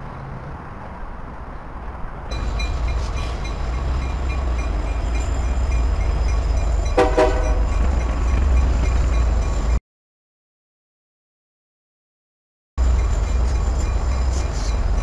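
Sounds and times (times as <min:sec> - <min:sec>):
diesel locomotive rumble: 0:00.0 - 0:09.8, 0:12.8 - 0:15.0
train horn blast: 0:07.0 - 0:07.7.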